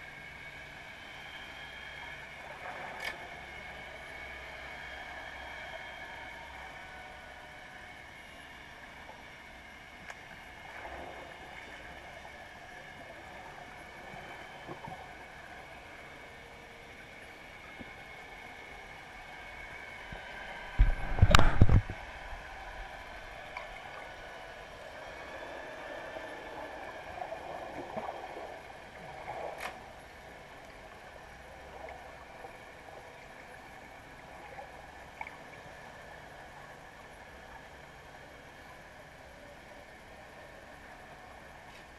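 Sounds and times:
faint steady tones: 0:00.0 - 0:41.9
small click: 0:03.0 - 0:03.2.

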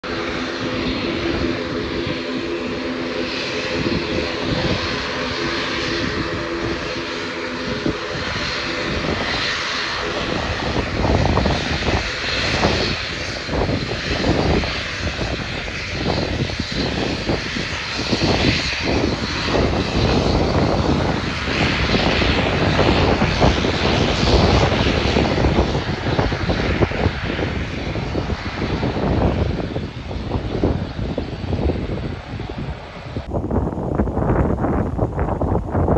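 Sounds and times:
propeller drone: 0:00.0 - 0:35.9.

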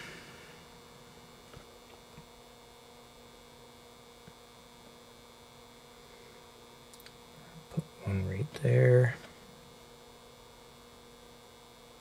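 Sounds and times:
faint mains hum: 0:00.0 - 0:12.0
tiny ticks: 0:06.9 - 0:07.2.

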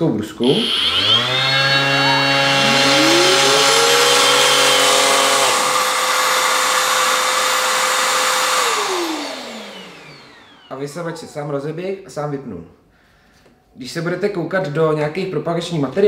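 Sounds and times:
orbital sander running: 0:00.4 - 0:11.3
vacuum extractor motor whine: 0:00.5 - 0:11.5.

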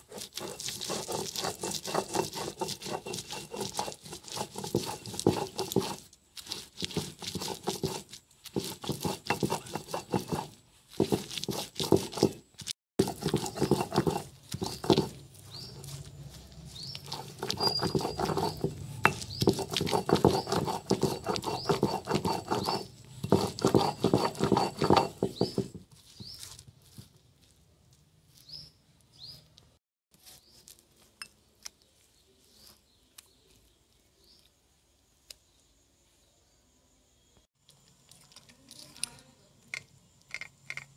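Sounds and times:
stone roller grinding on stone: 0:00.0 - 0:26.4.

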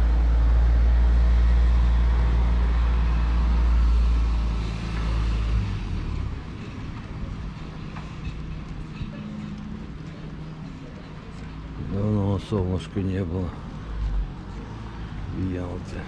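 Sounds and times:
street noise: 0:00.0 - 0:16.0
vehicle engine rumbling: 0:00.0 - 0:16.0.

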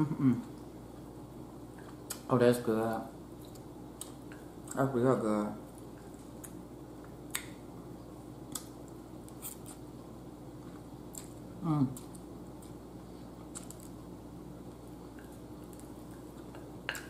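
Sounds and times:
person humming mmm: 0:00.0 - 0:00.5, 0:11.6 - 0:12.1.

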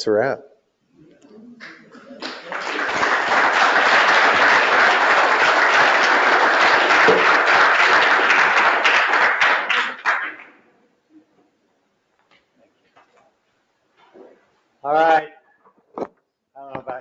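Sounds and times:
audience applauding: 0:01.6 - 0:10.6.

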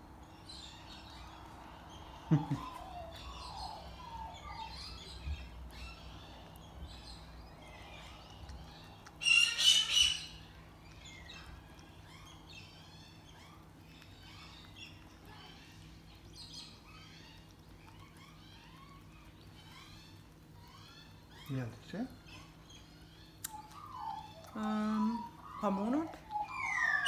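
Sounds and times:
birds chirping: 0:00.0 - 0:27.0
loud bird squawk: 0:09.2 - 0:10.4.

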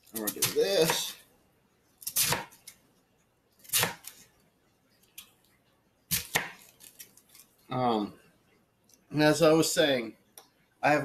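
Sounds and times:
knife crunching through cabbage: 0:00.0 - 0:01.2, 0:02.0 - 0:02.8, 0:03.6 - 0:04.3, 0:06.1 - 0:07.5.

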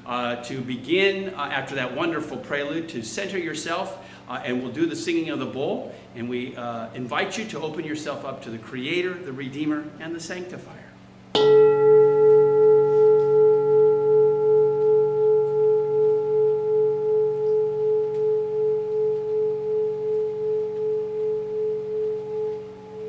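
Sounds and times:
metal singing bowl ringing: 0:11.3 - 0:23.0.

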